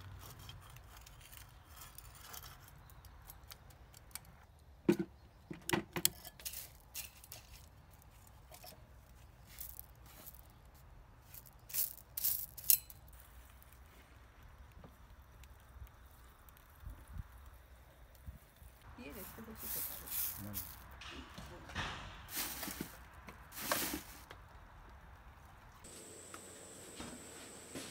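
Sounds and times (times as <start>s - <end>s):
small hard objects clicking: 0.0s - 4.6s, 5.5s - 13.8s, 14.6s - 18.9s
faint outdoor background: 0.0s - 27.9s.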